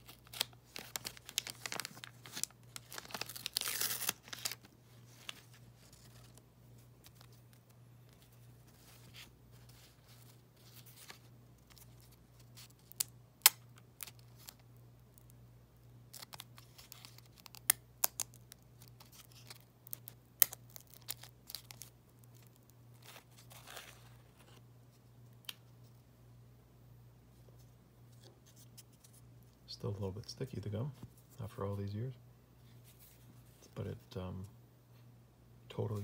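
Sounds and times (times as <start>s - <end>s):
gum peeling off card: 0.0s - 5.4s.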